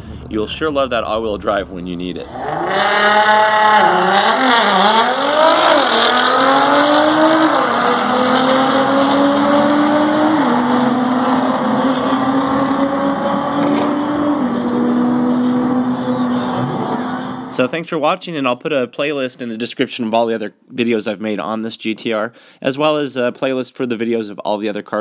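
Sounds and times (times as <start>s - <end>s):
car engine accelerating with upshifts: 2.3s - 17.6s.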